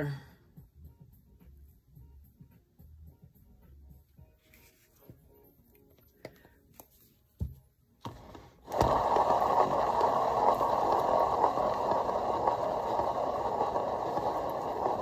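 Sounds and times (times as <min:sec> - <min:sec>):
paint spinner rushing: 0:08.1 - 0:15.0.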